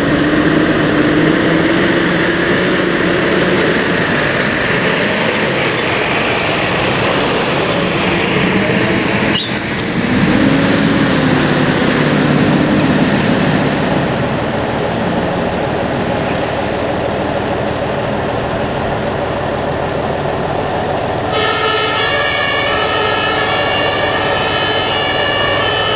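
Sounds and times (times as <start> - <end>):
diesel engine pulling away: 0.0 - 25.9
two-tone siren: 21.3 - 25.9.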